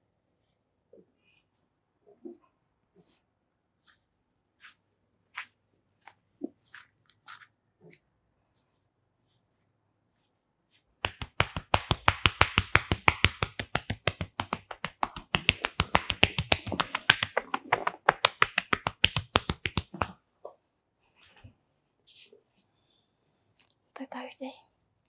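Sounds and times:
hands tapping and clapping on head: 11.0s - 20.2s.

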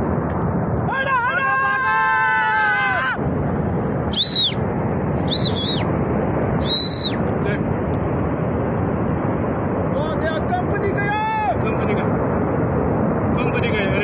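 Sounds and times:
landslide rushing: 0.0s - 14.0s
person shouting: 0.9s - 3.2s
short high whistles: 4.1s - 4.6s, 5.3s - 5.8s, 6.6s - 7.2s.

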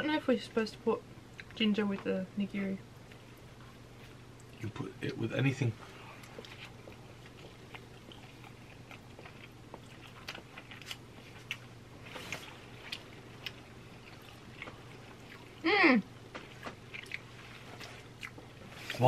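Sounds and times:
faint steady hum: 0.0s - 19.0s
chewing food: 6.1s - 19.0s.

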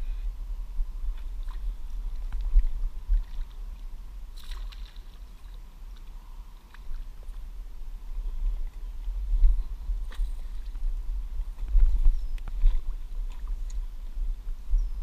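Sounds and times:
fish splashing in water: 4.3s - 5.6s.

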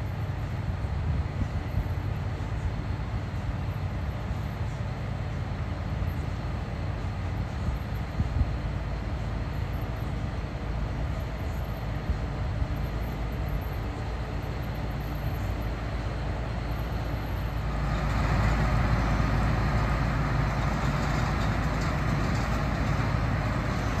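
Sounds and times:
rack railway locomotive rumbling: 8.6s - 24.0s.

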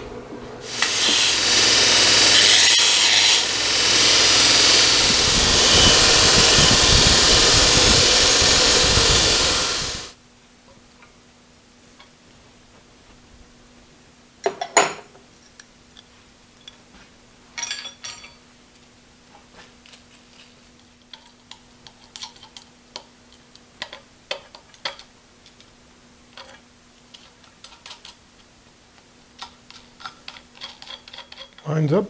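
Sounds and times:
ringing metal clink: 17.6s - 18.4s.

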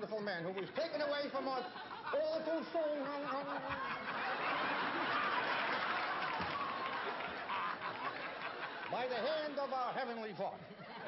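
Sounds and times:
audience laughing: 0.6s - 11.0s
audience applauding: 4.2s - 9.8s.

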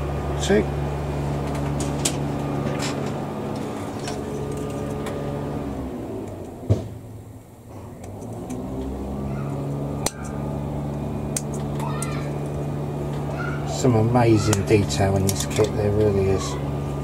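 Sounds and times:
small engine droning: 0.0s - 17.0s
sprue cutters snipping plastic: 14.4s - 16.2s.

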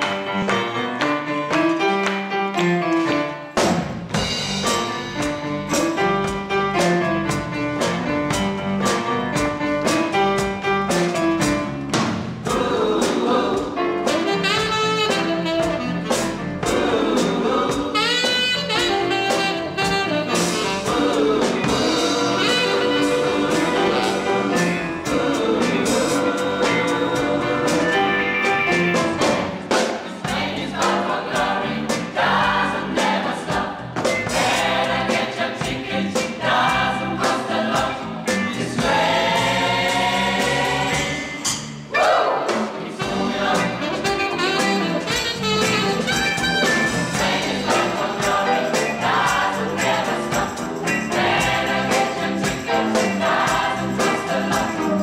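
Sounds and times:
live band playing gospel: 0.0s - 55.0s
steady drum beat: 3.6s - 55.0s
person singing: 20.9s - 28.1s.

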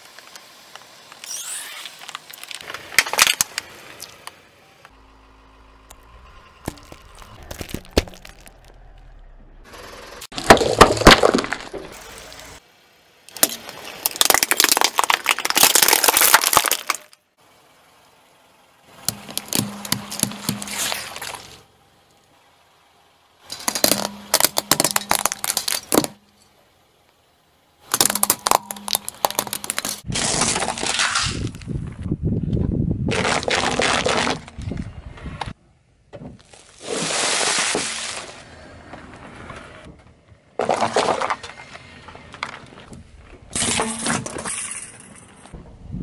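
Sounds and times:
tyre crushing small objects: 6.6s - 8.8s, 10.3s - 12.4s, 13.3s - 17.2s, 19.0s - 21.6s, 23.5s - 26.3s, 27.8s - 32.0s, 40.6s - 41.7s.

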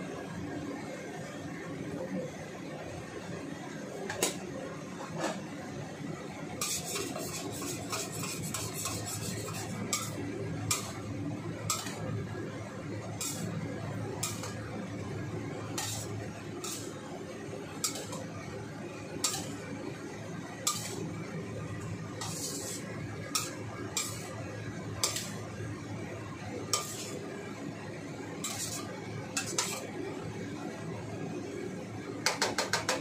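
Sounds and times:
metal spatula scraping a wok: 6.6s - 12.1s, 13.0s - 14.8s, 15.7s - 17.0s, 17.8s - 18.4s, 19.2s - 21.4s, 22.0s - 25.6s, 26.6s - 27.3s, 28.4s - 29.9s.

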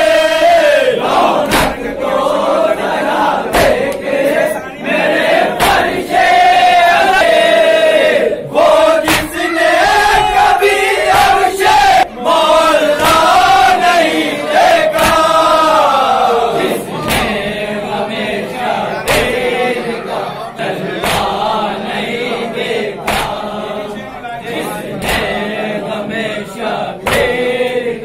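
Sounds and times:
men chanting in unison: 0.0s - 28.0s
hands striking chests: 1.4s - 1.9s, 3.5s - 4.0s, 9.0s - 9.4s, 17.0s - 17.4s, 19.1s - 19.4s, 21.0s - 21.4s, 27.0s - 27.4s.

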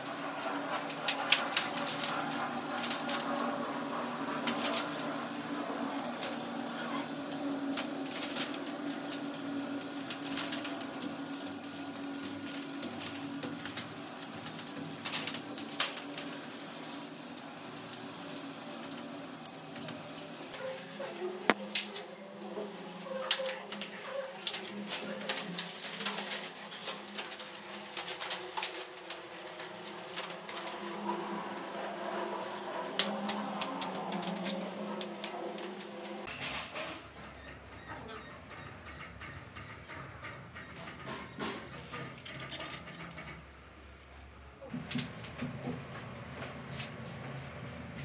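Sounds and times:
pipe clicks and foil crinkles: 0.0s - 36.3s, 40.8s - 43.4s.

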